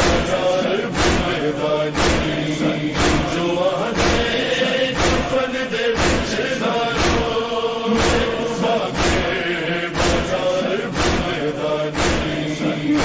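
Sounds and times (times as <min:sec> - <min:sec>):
heavy steady thump: 0:00.0 - 0:13.0
men chanting in unison: 0:00.0 - 0:13.0.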